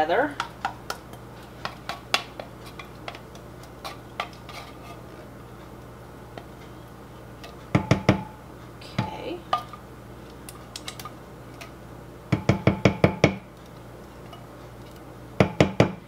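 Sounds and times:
spoon scraping tin can: 1.5s - 5.0s.

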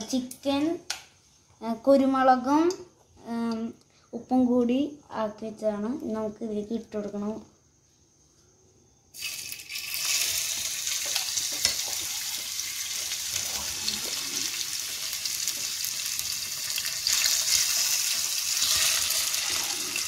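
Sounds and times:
chicken sizzling in hot oil: 9.2s - 20.0s.

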